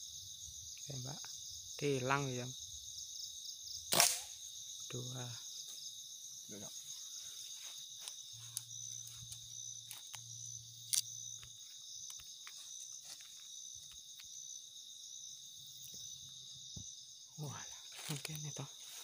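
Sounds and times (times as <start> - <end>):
crickets trilling: 0.0 - 19.0
sharp crack: 3.9 - 4.4.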